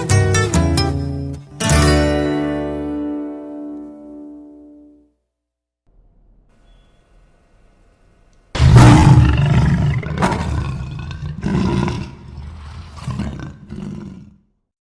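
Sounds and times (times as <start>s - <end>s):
lion roaring: 8.6s - 14.5s.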